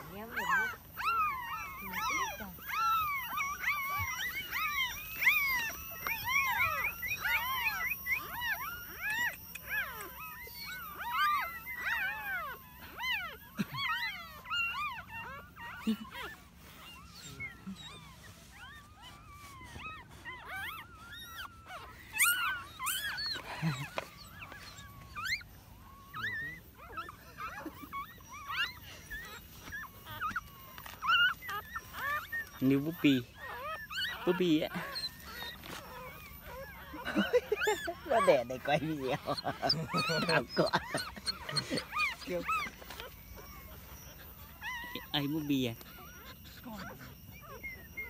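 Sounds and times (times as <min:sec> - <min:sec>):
puppies whining: 0:00.0 - 0:48.0
rustling handling noise: 0:14.4 - 0:26.8, 0:35.0 - 0:37.0.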